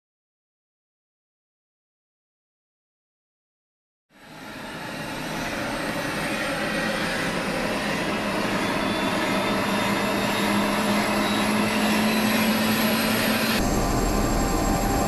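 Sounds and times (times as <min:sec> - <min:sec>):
helicopter engine and rotor: 0:04.1 - 0:15.0.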